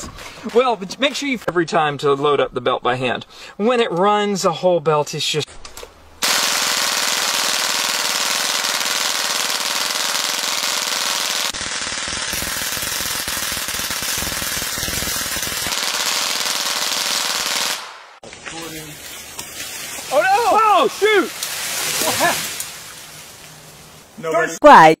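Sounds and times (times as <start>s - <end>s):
machine gun firing bursts: 6.2s - 18.0s.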